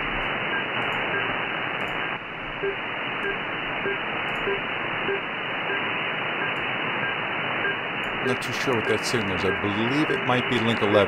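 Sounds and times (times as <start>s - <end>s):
faint data signal: 0.0s - 11.0s
hissing radio static: 0.0s - 11.0s.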